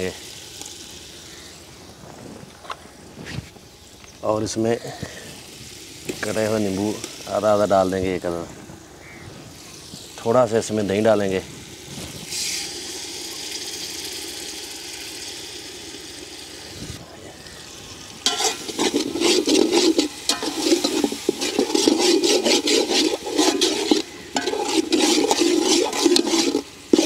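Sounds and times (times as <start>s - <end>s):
food sizzling in a pot: 0.0s - 27.0s
metal spatula scraping a pot: 18.2s - 27.0s.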